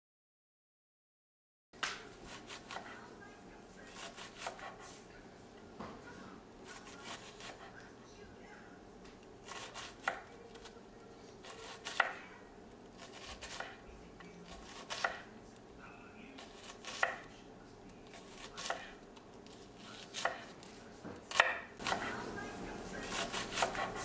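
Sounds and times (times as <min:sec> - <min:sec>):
knife chopping on wooden board: 0:01.8 - 0:02.9, 0:03.9 - 0:04.8, 0:06.7 - 0:07.7, 0:09.5 - 0:10.3, 0:11.4 - 0:12.2, 0:13.0 - 0:13.8, 0:14.5 - 0:15.3, 0:16.4 - 0:17.3, 0:18.1 - 0:22.2, 0:23.0 - 0:24.0.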